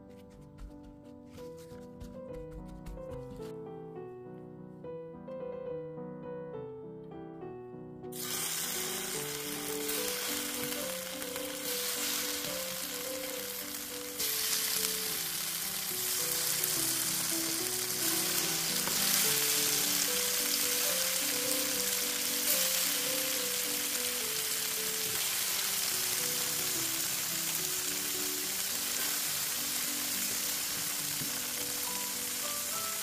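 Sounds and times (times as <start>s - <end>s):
background music: 0.0s - 33.0s
tofu sizzling in oil: 8.2s - 33.0s.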